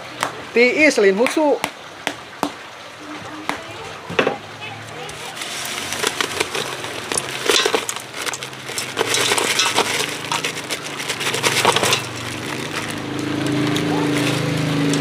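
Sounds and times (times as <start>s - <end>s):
plastic bag crackling: 4.8s - 15.0s
ice clinking against metal pot: 5.0s - 15.0s.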